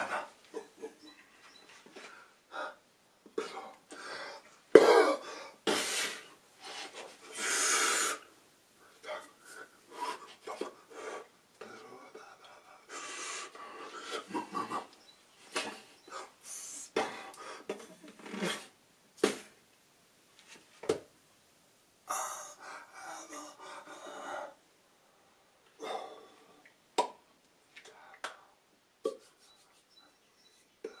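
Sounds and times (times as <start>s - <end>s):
mouth smacks: 27.8s - 29.8s.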